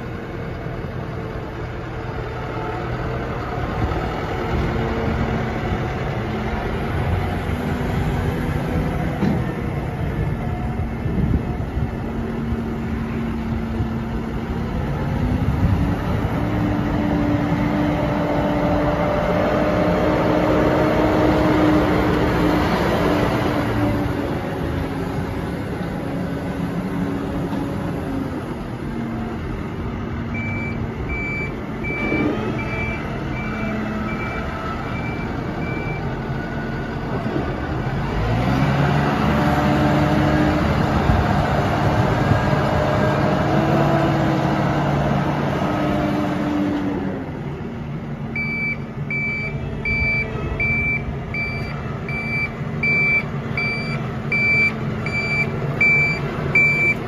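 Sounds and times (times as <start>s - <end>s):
tractor diesel engine running: 0.0s - 57.0s
reversing alarm beeping: 30.4s - 36.1s, 48.4s - 57.0s.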